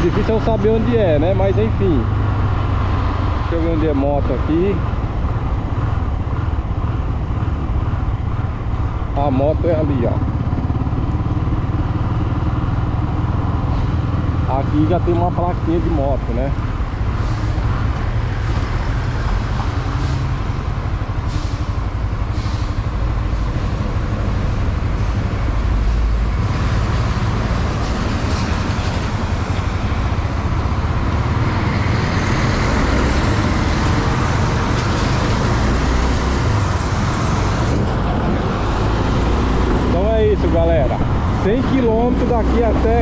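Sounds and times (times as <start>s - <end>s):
road traffic: 0.0s - 43.0s
motorcycle engine: 4.9s - 14.5s.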